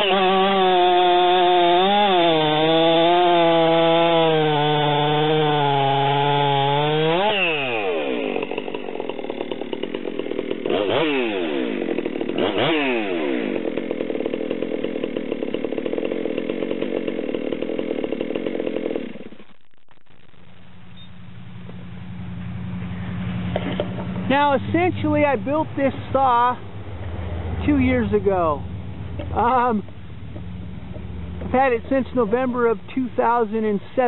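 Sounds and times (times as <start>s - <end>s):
chainsaw revving and idling: 0.0s - 19.5s, 21.5s - 34.0s
chainsaw cutting log: 0.0s - 19.6s, 23.1s - 34.0s.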